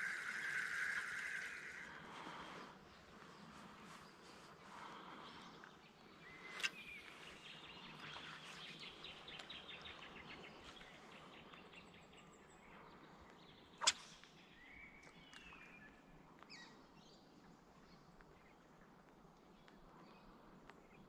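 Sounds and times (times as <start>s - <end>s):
bird calls: 0.0s - 16.8s.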